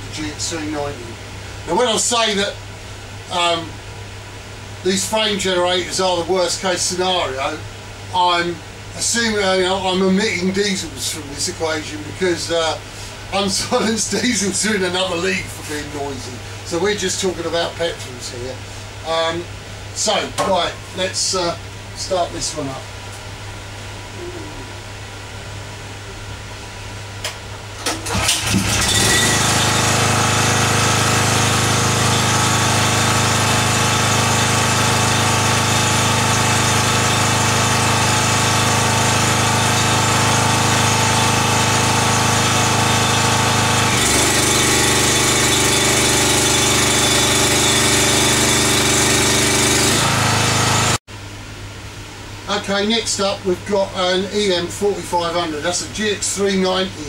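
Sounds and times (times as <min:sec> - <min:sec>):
starter cord pulls: 0:27.8 - 0:29.7
generator engine running: 0:27.8 - 0:51.0.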